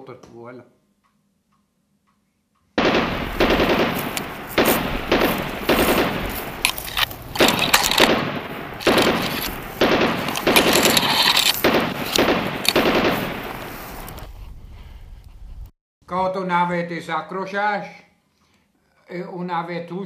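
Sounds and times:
machine-gun fire: 2.8 - 14.2
heavy sharp gunshot reports: 2.8 - 14.3.

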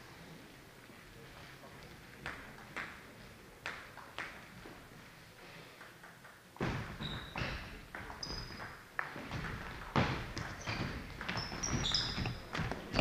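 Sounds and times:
shoes squeaking on floor: 6.6 - 13.0.

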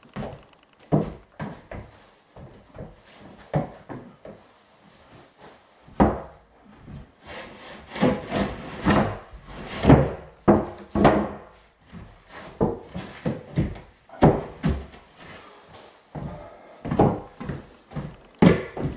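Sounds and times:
wooden floor panels scraping: 6.9 - 15.5.

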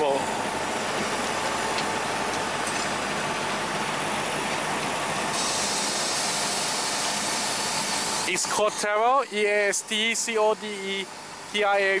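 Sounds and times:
steam locomotive hissing: 5.3 - 8.8.

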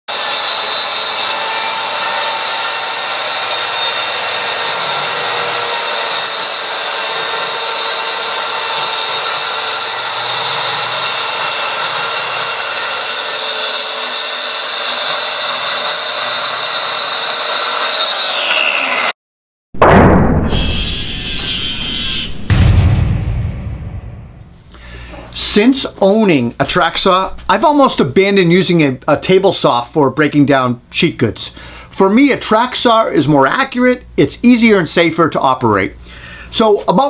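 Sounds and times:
track saw cutting wood: 0.1 - 19.2, 20.6 - 22.4.

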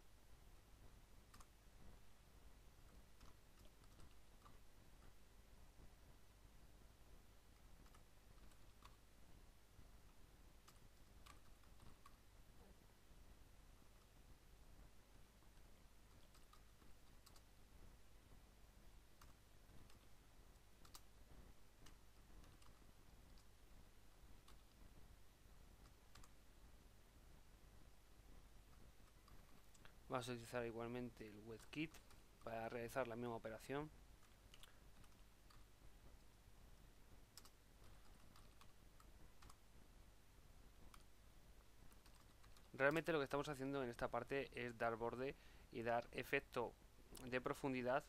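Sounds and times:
low background noise: 0.0 - 48.0
low steady hum: 0.0 - 48.0
faint keyboard typing: 0.8 - 48.0
keyboard typing: 1.3 - 1.6, 2.8 - 5.2, 7.5 - 9.1, 10.6 - 12.2, 15.4 - 17.5, 19.1 - 23.6, 24.2 - 24.8, 25.8 - 26.4, 31.3 - 33.1, 34.2 - 35.7, 37.3 - 39.6, 40.8 - 43.0.

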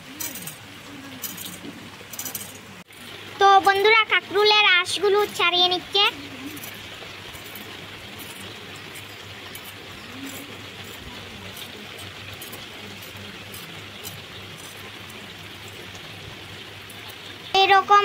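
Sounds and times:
rain falling: 0.0 - 18.0
knife scraping gourd skin: 6.4 - 16.1.

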